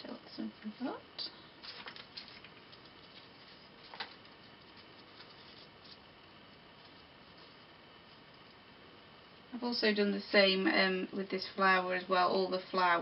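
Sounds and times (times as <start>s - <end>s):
paper and metal pieces rustling: 1.6s - 6.1s.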